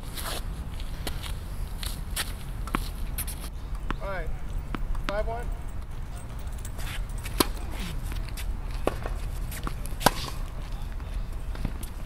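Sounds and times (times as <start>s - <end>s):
tennis racket hitting ball: 4.7s - 5.4s, 6.7s - 10.6s.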